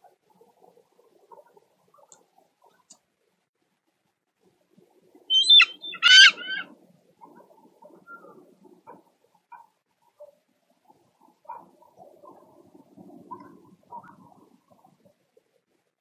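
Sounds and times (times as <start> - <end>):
eagle high-pitched calls: 5.3 - 6.7.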